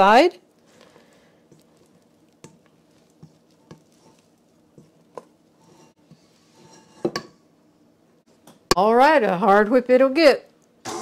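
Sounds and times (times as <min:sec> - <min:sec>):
spatula scraping a metal bowl: 0:02.4 - 0:07.2.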